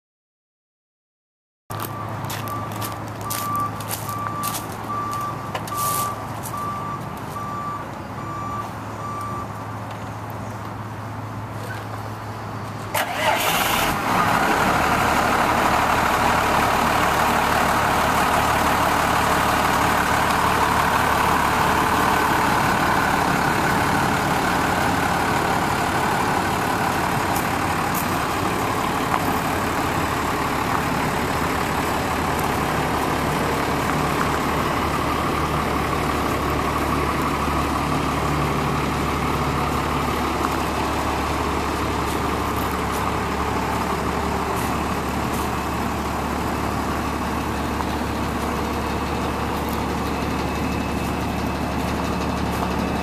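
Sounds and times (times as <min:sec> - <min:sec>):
diesel engine idling: 0:01.7 - 0:53.0
diesel engine cranking and starting: 0:11.7 - 0:53.0.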